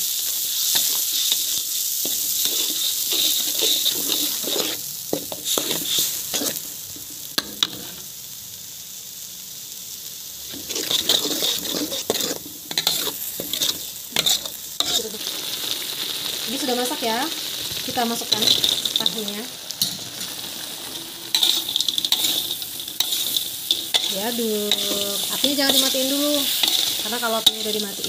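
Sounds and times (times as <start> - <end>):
paste sizzling in wok: 0.0 - 28.0
metal spatula scraping pan: 2.0 - 6.6, 10.5 - 15.2, 21.3 - 28.0.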